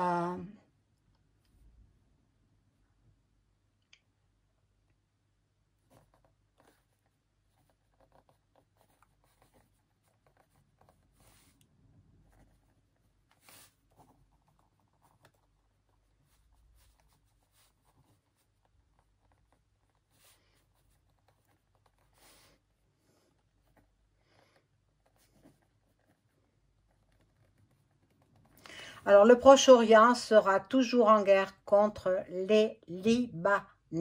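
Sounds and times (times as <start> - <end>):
pen scratching on paper: 5.8 - 32.2.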